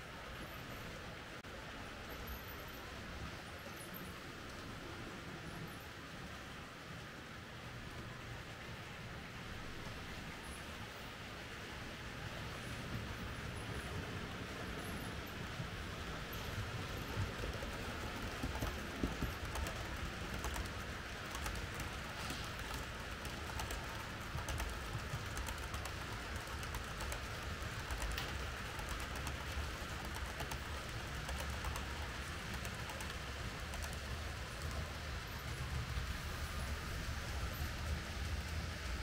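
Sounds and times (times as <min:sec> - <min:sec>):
model train rumbling: 0:06.4 - 0:39.0
light irregular clicks: 0:16.3 - 0:34.9.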